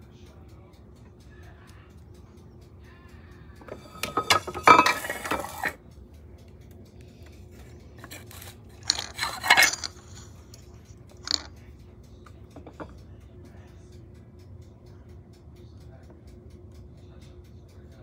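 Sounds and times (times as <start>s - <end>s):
blender parts clattering on countertop: 3.7s - 5.8s, 8.0s - 10.3s, 11.3s - 11.5s.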